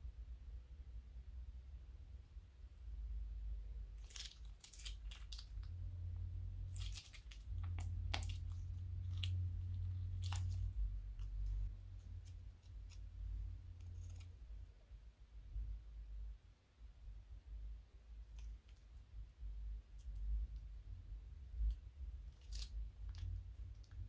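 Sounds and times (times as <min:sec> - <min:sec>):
slime popping and squishing: 0:04.0 - 0:05.8, 0:06.7 - 0:13.1
low handling rumble: 0:05.0 - 0:13.8.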